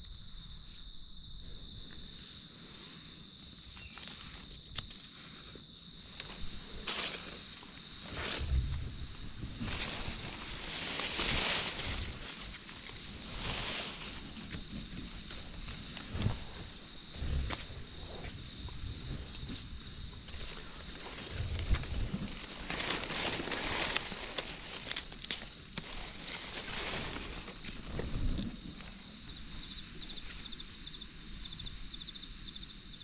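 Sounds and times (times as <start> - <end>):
insects trilling: 0.0 - 33.0
rapid pulsing insect call: 0.0 - 33.0
footsteps through undergrowth: 6.0 - 30.6
low thumps: 8.2 - 12.3.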